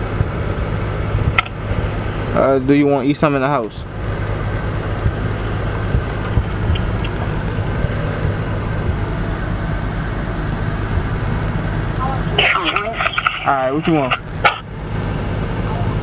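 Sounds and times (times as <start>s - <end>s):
car cabin road and engine rumble: 0.0s - 16.0s.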